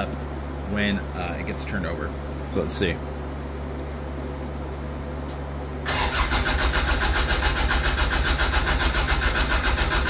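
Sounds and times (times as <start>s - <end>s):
steady low hum: 0.0s - 10.0s
engine cranking by starter motor: 5.8s - 10.0s.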